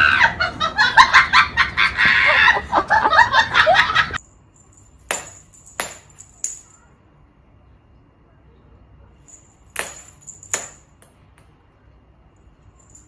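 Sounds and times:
high cackling laughter: 0.0 - 4.2.

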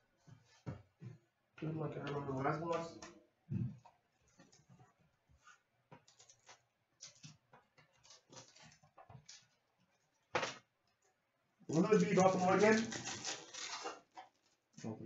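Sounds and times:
foil wrapper crinkling: 11.7 - 14.7.

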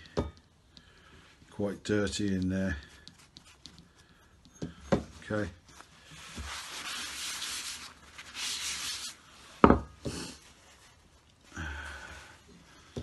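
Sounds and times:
tissue rubbing on metal toy: 1.8 - 4.1, 5.2 - 9.6, 10.2 - 11.4.

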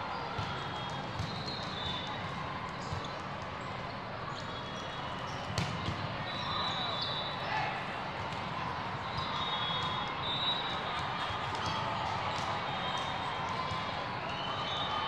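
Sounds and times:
crowd chatter: 0.0 - 15.0
volleyballs hit and bouncing: 0.3 - 2.1, 5.4 - 6.4.

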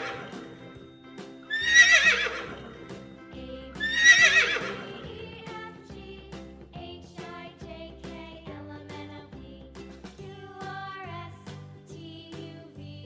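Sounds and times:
horse neighing: 0.0 - 0.7, 1.5 - 3.0, 3.8 - 5.0
background music: 0.0 - 13.0.

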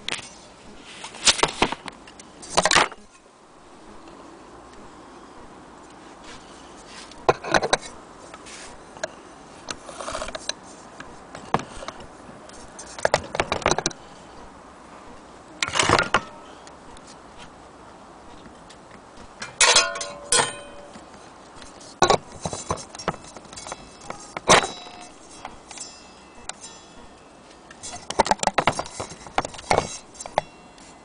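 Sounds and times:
metal clinks and clatters: 19.4 - 21.0, 22.4 - 30.9
platter ringing clang: 19.4 - 21.0, 23.0 - 30.8.

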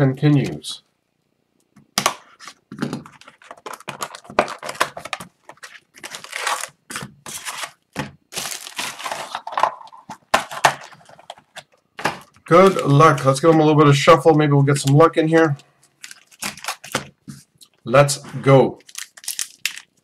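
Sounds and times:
plastic crinkling and tearing: 3.2 - 9.6, 15.9 - 17.1, 18.8 - 20.0.

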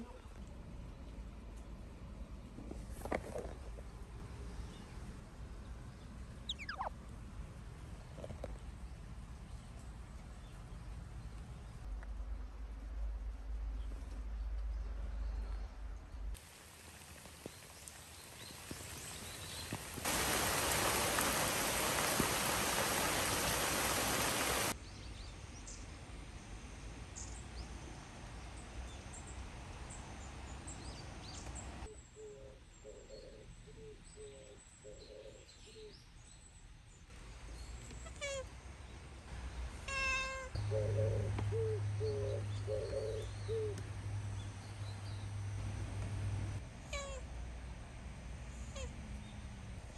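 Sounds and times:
loud steady hiss: 16.4 - 24.8.

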